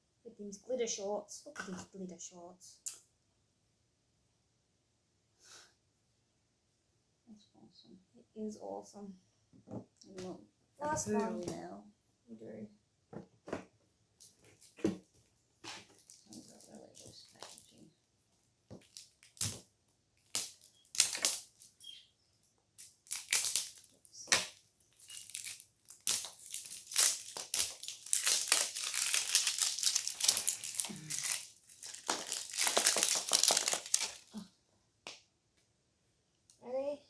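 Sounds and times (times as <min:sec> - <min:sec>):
plastic wrap crinkling: 0:15.7 - 0:17.9, 0:18.8 - 0:19.6, 0:20.2 - 0:21.9, 0:22.8 - 0:34.4.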